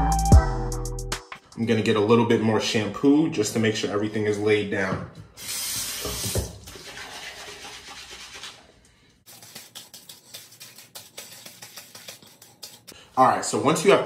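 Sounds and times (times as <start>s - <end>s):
hands scrubbing lathered hair: 9.3s - 13.0s.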